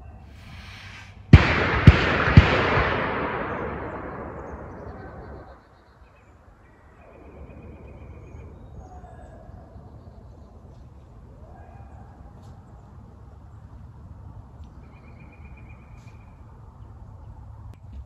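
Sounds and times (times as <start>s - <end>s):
low rumble: 0.3s - 5.7s
distant hounds baying: 11.4s - 12.5s.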